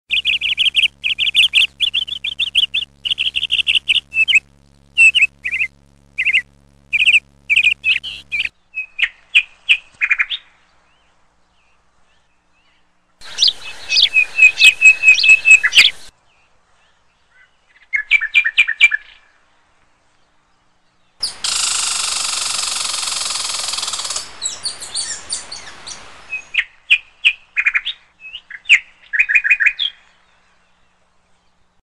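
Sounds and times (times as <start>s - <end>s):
sparrow chirping: 0.1s - 8.5s, 13.2s - 16.1s
steady hiss: 13.2s - 16.1s, 21.2s - 26.5s.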